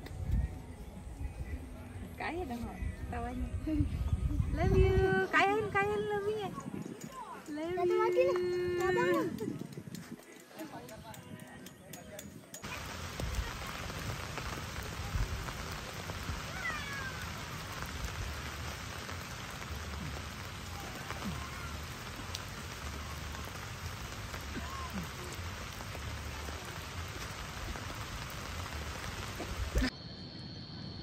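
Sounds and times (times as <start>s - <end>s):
rain on a tarp: 7.1s - 11.4s, 12.6s - 29.9s
water dripping off tarp edge: 12.6s - 29.9s.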